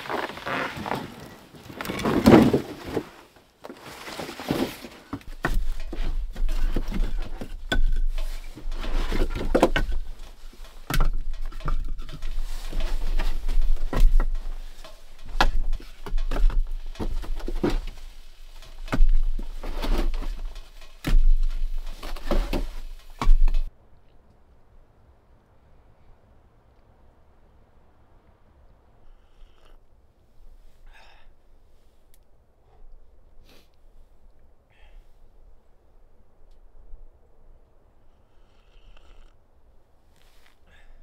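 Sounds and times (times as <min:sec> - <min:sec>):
firewood logs knocking and clattering: 0:00.9 - 0:23.7.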